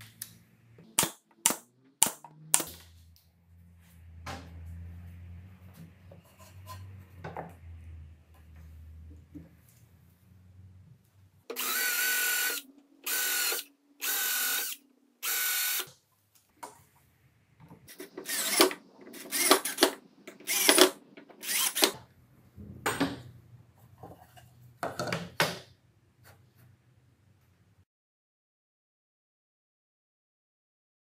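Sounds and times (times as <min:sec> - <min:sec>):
drill driving screws into wood: 0:11.5 - 0:15.9, 0:17.9 - 0:22.0.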